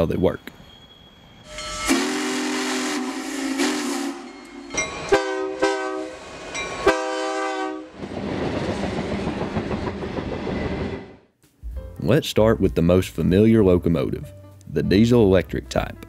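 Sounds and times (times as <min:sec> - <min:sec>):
locomotive rumbling past: 0:00.0 - 0:11.3
steam locomotive chime whistle: 0:00.3 - 0:07.9
locomotive air horn blasts: 0:01.5 - 0:06.2, 0:06.8 - 0:07.9.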